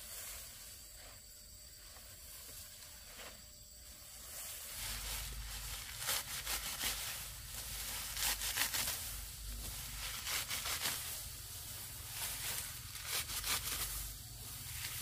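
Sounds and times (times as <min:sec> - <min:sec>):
stalks rustling and tearing: 0:04.7 - 0:15.0.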